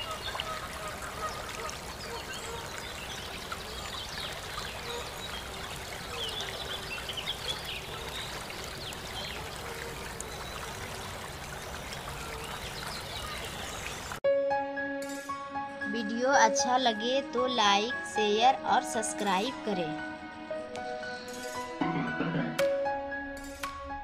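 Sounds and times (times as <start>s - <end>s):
running water hiss: 0.0s - 14.2s
small birds chirping: 1.2s - 14.2s.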